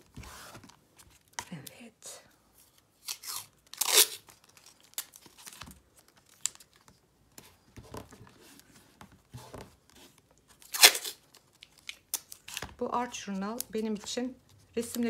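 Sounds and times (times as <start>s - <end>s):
masking tape ripping: 3.0s - 5.2s, 10.6s - 12.7s.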